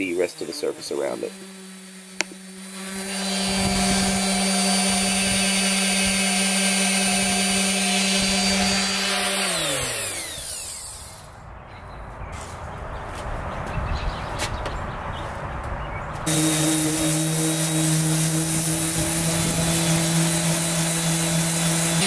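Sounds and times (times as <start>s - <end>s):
orbital sander running: 0.0s - 11.4s, 16.3s - 22.0s.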